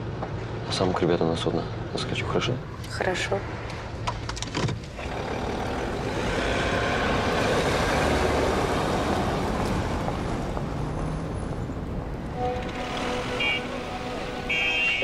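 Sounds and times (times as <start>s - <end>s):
car driving past: 5.0s - 14.8s.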